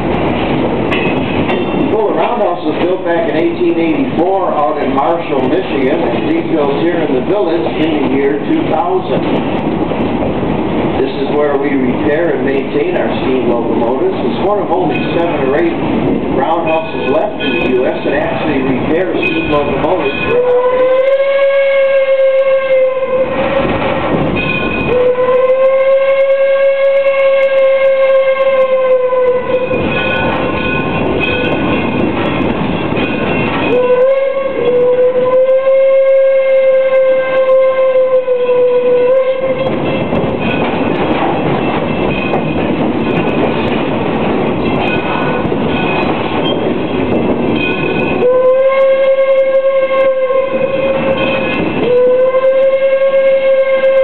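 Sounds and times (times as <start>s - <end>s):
train wheel clatter: 0.0s - 54.0s
steam whistle blasts: 20.3s - 23.6s, 24.9s - 29.7s, 33.7s - 39.7s, 48.2s - 54.0s.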